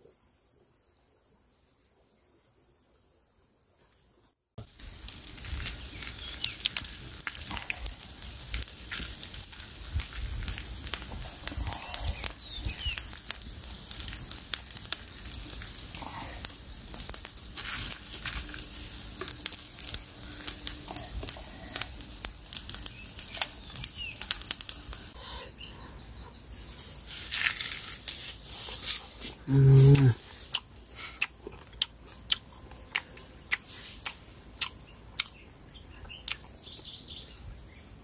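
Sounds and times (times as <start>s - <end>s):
fire crackling and popping: 4.6s - 25.2s, 26.5s - 37.2s.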